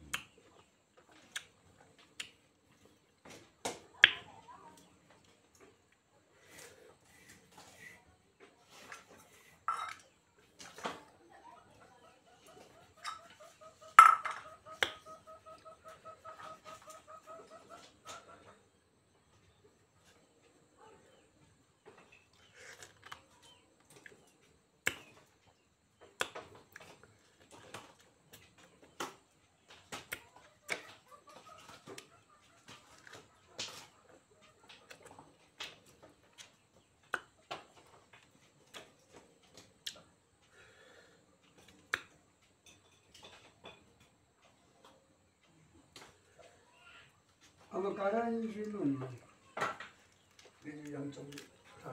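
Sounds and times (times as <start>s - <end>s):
person chewing soft fruit: 0.0s - 3.4s, 22.2s - 30.8s, 32.8s - 33.2s, 34.8s - 42.6s
chicken clucking: 6.6s - 22.3s, 26.8s - 40.4s
metal pot clanks: 9.7s - 10.0s, 14.0s - 14.4s.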